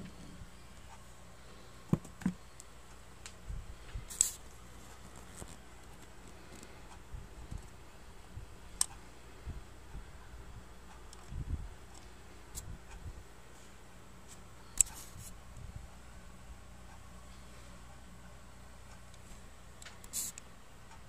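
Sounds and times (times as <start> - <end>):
faint hiss: 19.9 - 20.5.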